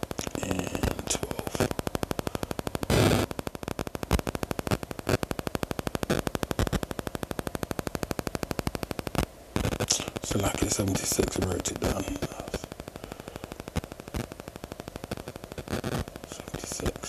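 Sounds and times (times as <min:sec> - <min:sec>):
burst of noise: 0:00.0 - 0:08.4, 0:09.1 - 0:14.3
rapid electronic clicks: 0:00.0 - 0:17.0.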